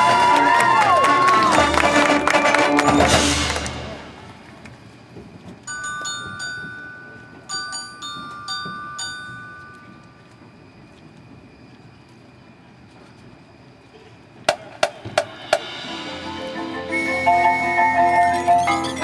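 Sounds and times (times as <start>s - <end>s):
marching band with brass: 0.0s - 5.0s, 14.5s - 19.0s
mallet percussion bell-like notes: 2.8s - 3.6s, 5.7s - 10.1s.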